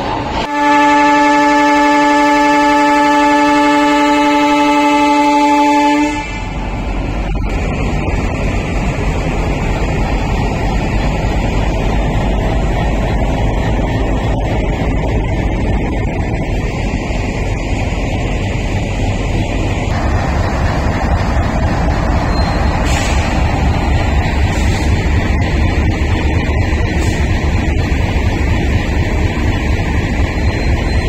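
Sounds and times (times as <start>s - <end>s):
train rumbling: 0.0s - 31.0s
train horn: 0.4s - 6.6s.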